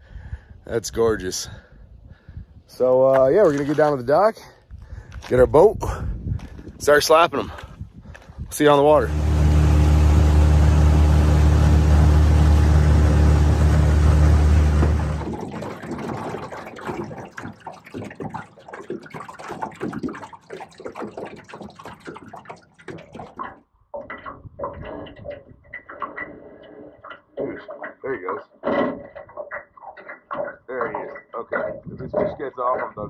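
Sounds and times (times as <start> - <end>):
outboard motor running: 8.8 - 23.5
water lapping against metal hull: 8.8 - 33.0.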